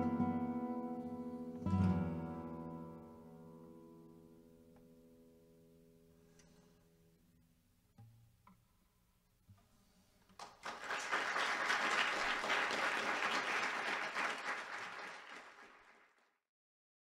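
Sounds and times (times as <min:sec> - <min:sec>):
audience applauding: 0:10.4 - 0:16.4.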